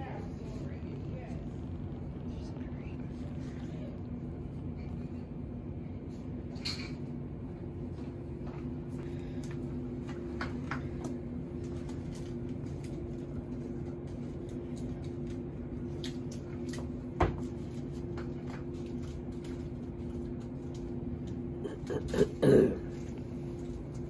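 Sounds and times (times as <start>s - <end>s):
kitten purring: 0.0s - 6.6s.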